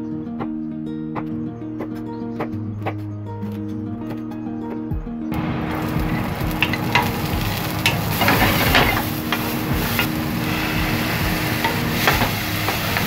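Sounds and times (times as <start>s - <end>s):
vegetables sizzling in frying pan: 5.4s - 13.0s
wooden spatula scraping pan: 6.6s - 13.0s.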